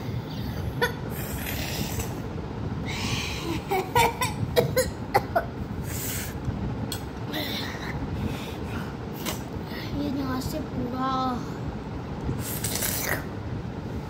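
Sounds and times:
boy breathing hard: 2.8s - 3.7s, 5.8s - 6.4s, 7.3s - 9.0s
boy coughing: 4.0s - 5.5s.

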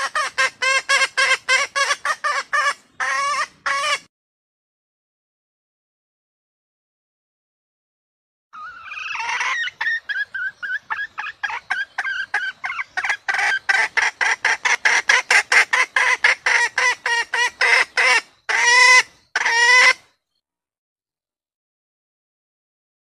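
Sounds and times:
hen clucking: 0.0s - 4.1s, 8.6s - 20.0s.

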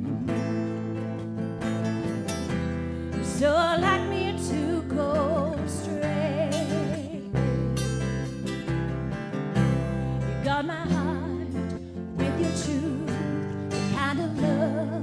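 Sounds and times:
electric bass: 0.0s - 15.0s
strummed acoustic guitar: 0.0s - 15.0s
woman singing with vibrato: 3.1s - 7.6s, 10.2s - 15.0s.

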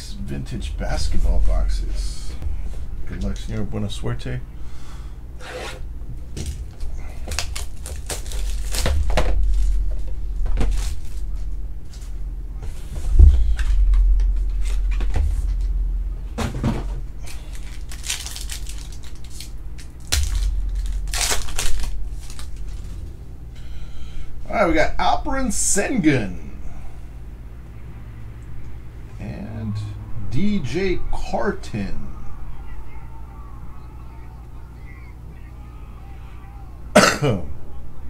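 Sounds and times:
foil card pack crinkling: 6.4s - 12.1s, 17.2s - 23.1s
shrink wrap crinkling and tearing: 6.4s - 12.1s, 17.2s - 23.2s.

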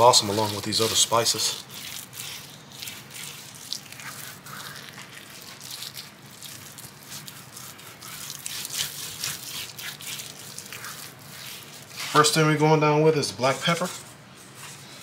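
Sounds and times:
hand rubbing and slapping meat: 0.0s - 12.6s.

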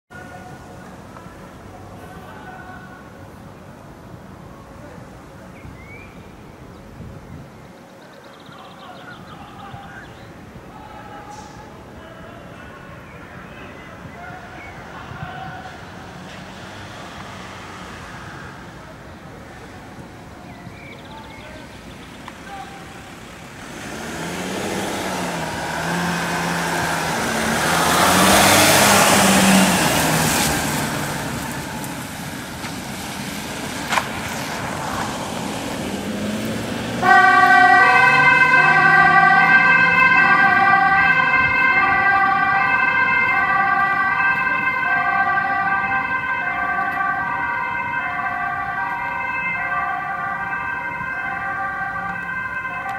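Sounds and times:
van engine accelerating past: 23.1s - 43.3s
two-tone siren: 25.2s - 32.3s, 37.0s - 52.9s.

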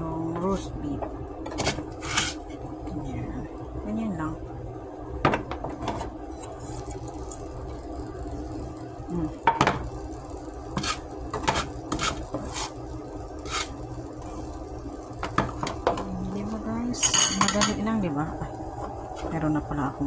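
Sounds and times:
metal utensil clinking on pan: 17.0s - 17.8s.

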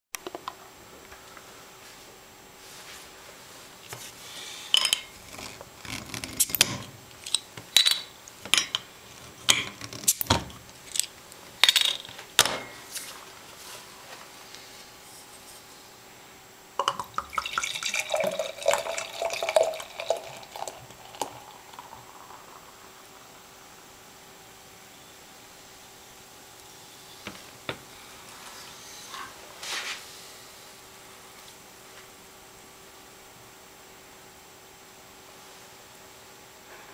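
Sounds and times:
cans and glass knocking and clinking: 16.8s - 21.4s
beer pouring into glass: 16.8s - 23.2s.

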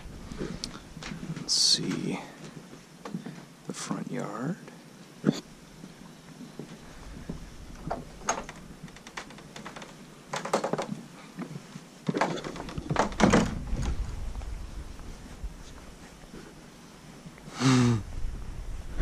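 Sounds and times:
low rumble: 0.0s - 1.5s, 12.8s - 16.5s
knocks and thumps: 7.3s - 11.0s, 12.1s - 14.2s.

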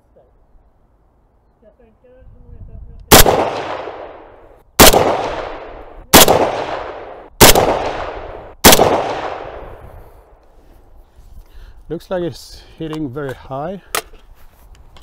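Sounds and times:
rifle shots with echo: 3.1s - 9.8s.

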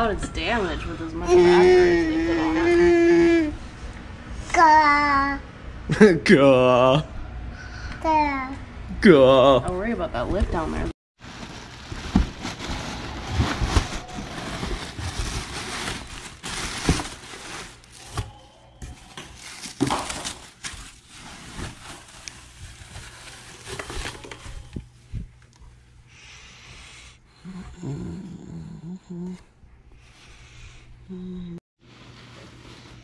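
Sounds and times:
plastic and foam crinkling: 11.2s - 24.8s.

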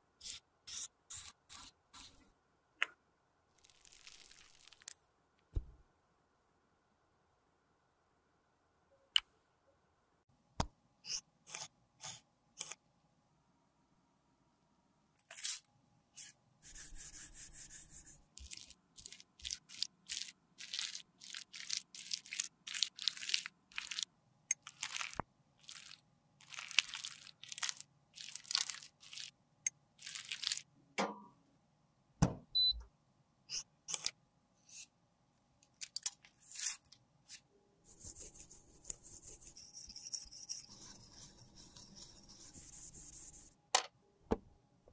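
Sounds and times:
metal blade scraping lipstick: 39.4s - 41.9s.

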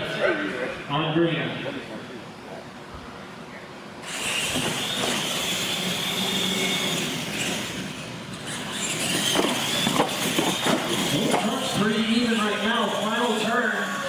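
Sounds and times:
toy trucks electric motors whining: 4.0s - 14.0s.

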